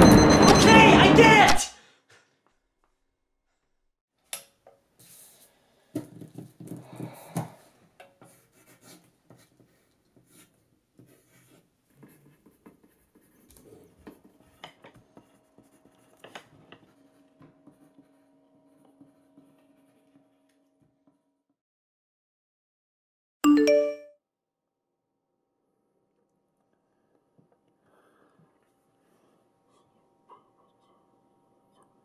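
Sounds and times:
pencil scratching on paper: 8.2s - 20.3s.

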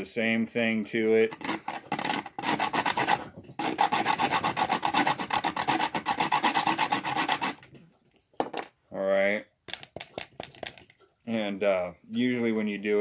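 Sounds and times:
wood rasped on metal grater: 1.3s - 7.7s.

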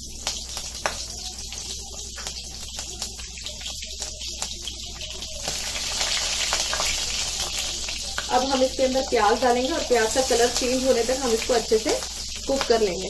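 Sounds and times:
spices sizzling in hot oil: 0.0s - 13.0s.

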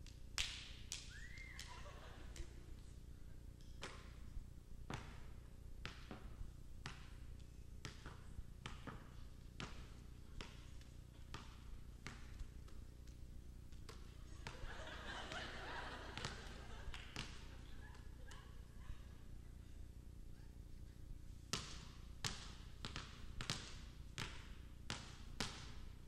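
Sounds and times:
basketball bouncing on floor: 3.8s - 4.2s, 4.9s - 14.7s, 16.2s - 18.0s, 21.5s - 26.0s.

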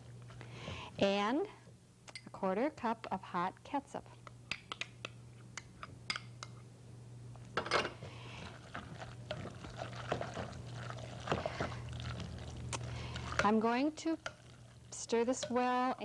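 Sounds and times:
wet scraping and squishing: 8.4s - 13.5s.

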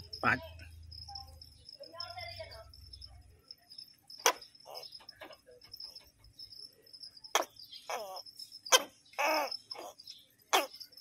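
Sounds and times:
gecko croaking: 3.7s - 11.0s.

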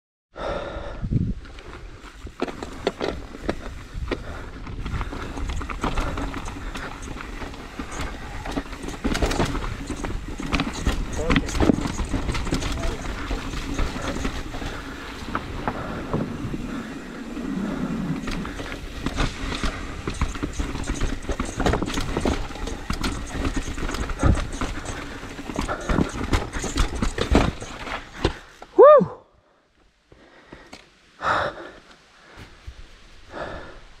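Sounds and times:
bike clattering over trail: 1.5s - 28.7s
disc brakes squealing: 5.2s - 15.0s, 17.4s - 28.2s.

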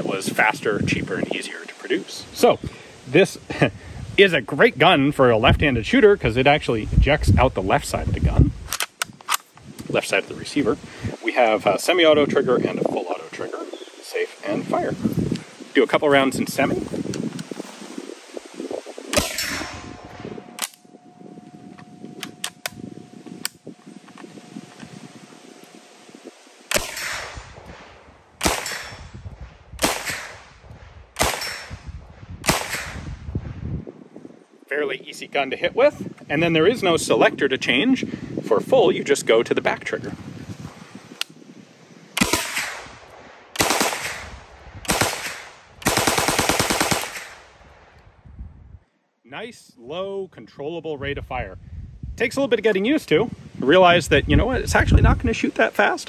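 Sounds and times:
gunshots: 19.1s - 19.8s, 26.7s - 29.1s, 29.8s - 30.6s, 31.2s - 31.8s, 32.4s - 33.1s, 42.2s - 47.5s
faint gunshot cracks: 26.7s - 27.6s, 28.4s - 29.0s, 29.8s - 30.6s, 32.4s - 33.0s, 42.2s - 43.0s
submachine gun bursts: 44.9s - 47.3s.

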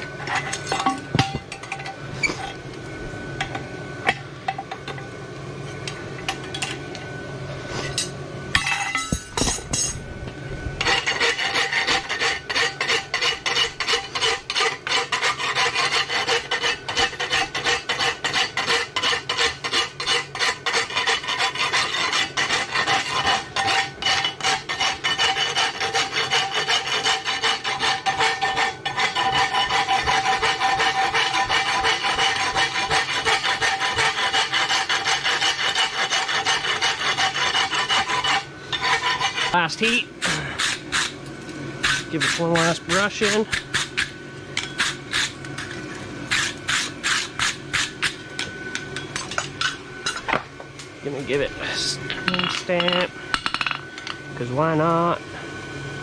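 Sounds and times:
file scraping steel horseshoe: 10.8s - 41.2s, 41.8s - 48.2s.

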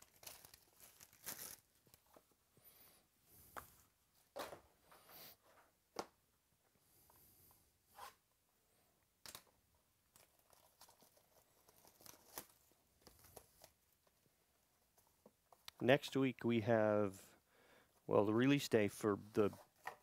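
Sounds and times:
cardboard rustling and crinkling: 0.0s - 2.3s, 10.1s - 14.1s.

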